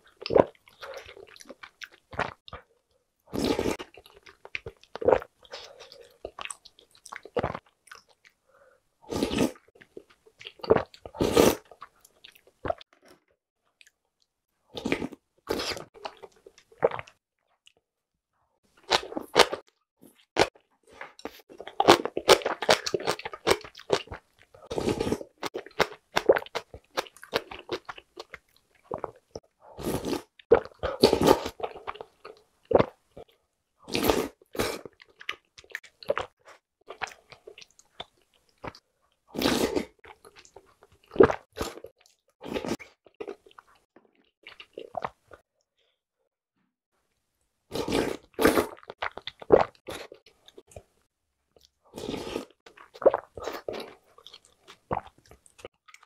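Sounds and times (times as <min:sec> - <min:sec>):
slurping noodle soup: 0:03.3 - 0:04.0, 0:09.1 - 0:09.7, 0:10.7 - 0:11.8, 0:24.0 - 0:25.6, 0:29.0 - 0:32.0, 0:33.9 - 0:35.0, 0:39.3 - 0:40.1, 0:47.7 - 0:50.2, 0:51.9 - 0:55.7.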